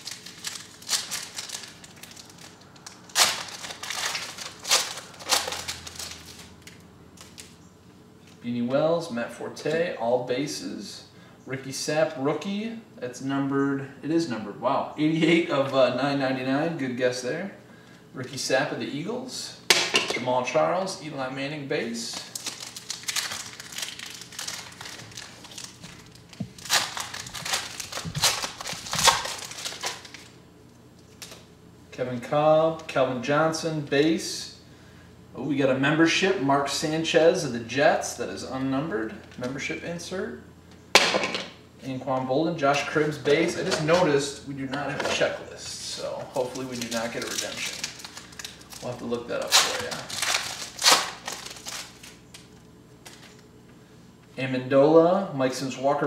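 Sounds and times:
wrapper crinkling as torn open: 0.0s - 7.6s, 22.1s - 30.4s, 46.3s - 53.5s.

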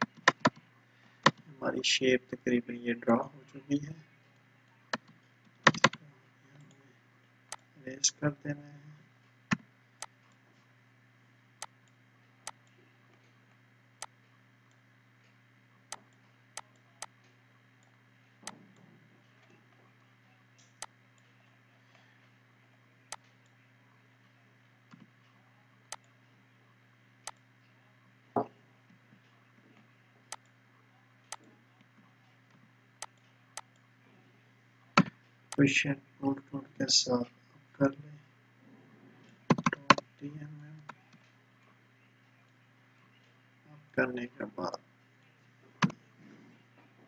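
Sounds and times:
computer mouse clicking: 0.0s - 0.6s, 4.9s - 6.0s, 39.5s - 40.0s
faint steady hum: 0.0s - 47.0s.

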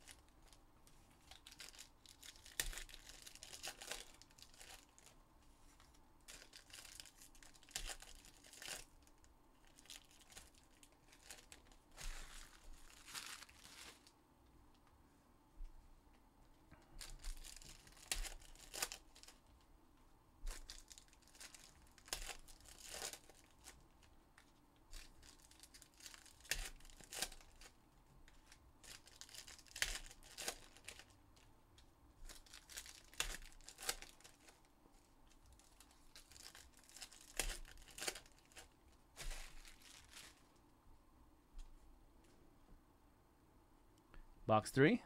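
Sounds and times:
plastic wrapping tearing and crinkling: 0.0s - 0.6s, 1.2s - 5.2s, 5.8s - 14.1s, 17.0s - 19.5s, 20.5s - 31.5s, 32.2s - 40.6s.

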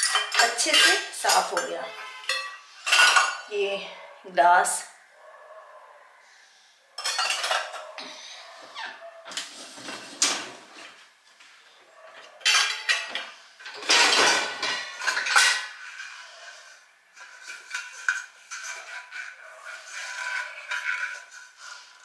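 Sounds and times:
steel dishes clattering: 0.0s - 3.5s, 7.0s - 7.9s, 12.4s - 16.5s, 17.1s - 22.0s.

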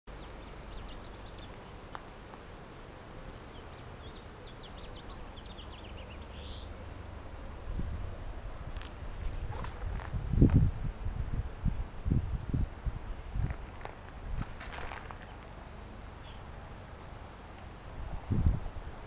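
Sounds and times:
small birds chirping: 0.1s - 2.4s, 3.2s - 7.1s, 13.1s - 17.2s
low outdoor rumble: 0.1s - 19.0s.

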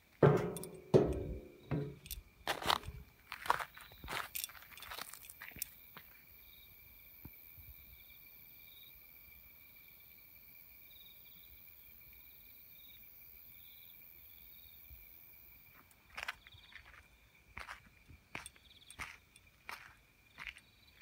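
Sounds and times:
insects chirping: 0.0s - 21.0s
footsteps on gravel: 0.2s - 6.2s, 16.0s - 21.0s.

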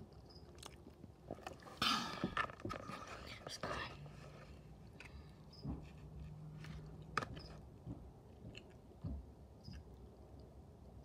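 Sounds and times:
chewing scrambled eggs: 6.7s - 9.0s.

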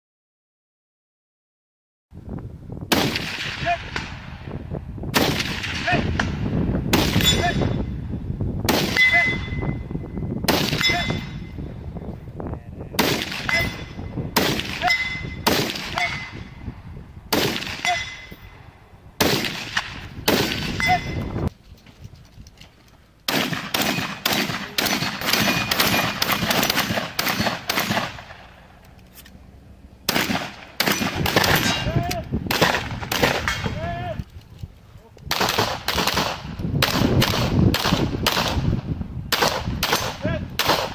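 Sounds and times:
rifle shots echoing: 2.9s - 4.4s, 5.1s - 7.5s, 8.7s - 9.5s, 10.5s - 11.4s, 13.0s - 16.4s, 17.3s - 18.3s, 19.2s - 21.1s, 23.3s - 28.8s, 30.0s - 31.9s, 32.5s - 33.8s, 35.3s - 38.7s, 39.3s - 40.9s
ping of struck steel targets: 7.0s - 7.9s, 8.7s - 11.6s, 13.0s - 16.6s, 17.3s - 18.6s, 19.2s - 21.4s, 23.3s - 28.6s, 30.0s - 33.8s.

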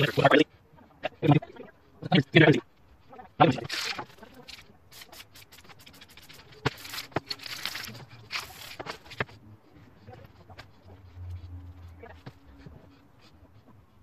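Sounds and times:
spray paint hissing: 3.6s - 9.3s.

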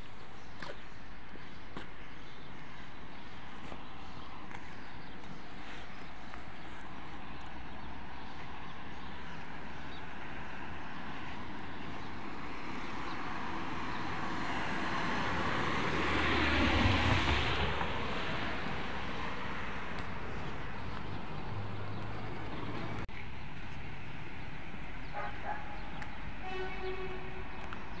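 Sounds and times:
street noise: 0.0s - 28.0s
vehicle passing: 12.1s - 23.1s.

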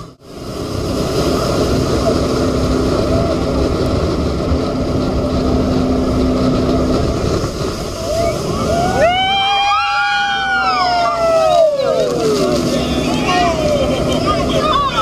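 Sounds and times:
boat engine and wind rushing: 0.0s - 15.0s
passengers screaming: 8.0s - 15.0s.

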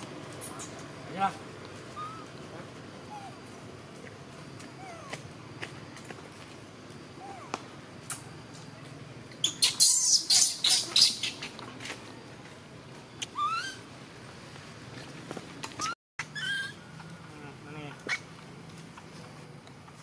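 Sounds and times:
infant monkey squealing: 1.9s - 2.3s, 3.0s - 3.4s, 4.8s - 5.2s, 7.2s - 7.6s, 9.4s - 11.5s, 13.2s - 13.8s, 15.8s - 16.8s, 18.0s - 18.3s.

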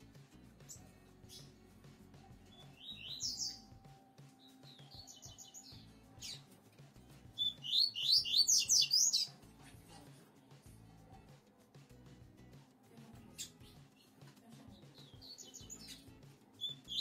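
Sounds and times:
bird singing high notes: 2.6s - 3.7s, 7.4s - 9.3s.

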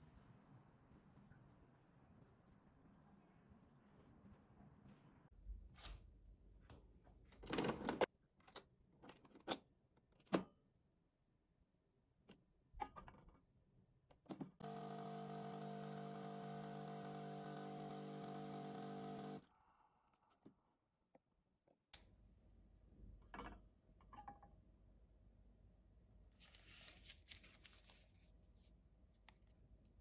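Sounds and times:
pump humming: 14.6s - 19.4s.

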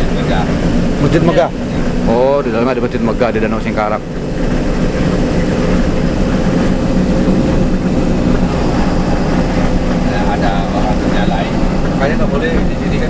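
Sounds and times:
bus engine drone with whine: 0.0s - 13.0s
tyre and road noise: 0.0s - 13.0s.

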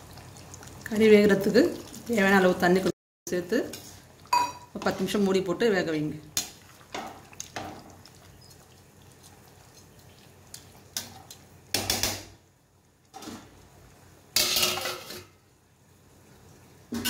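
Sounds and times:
metal lid clattering: 14.4s - 15.3s.

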